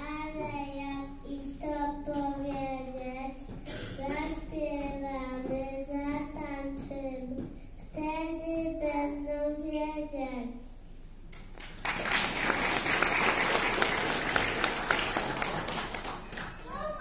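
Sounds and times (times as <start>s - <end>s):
audience applauding: 11.6s - 17.0s.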